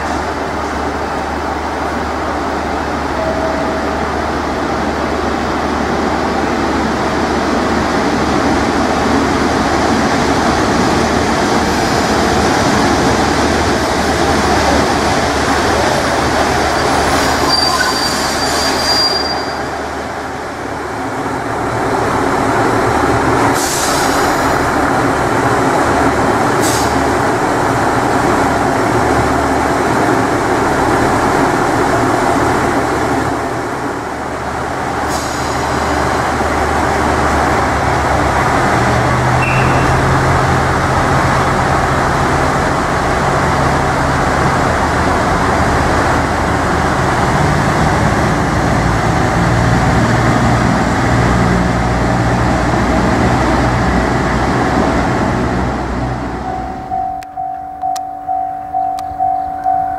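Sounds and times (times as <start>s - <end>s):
diesel railcar engine: 0.0s - 59.9s.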